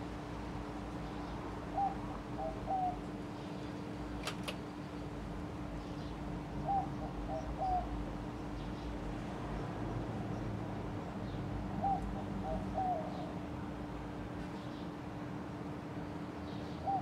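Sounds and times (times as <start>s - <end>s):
bird calling: 1.7s - 3.0s, 11.8s - 13.3s.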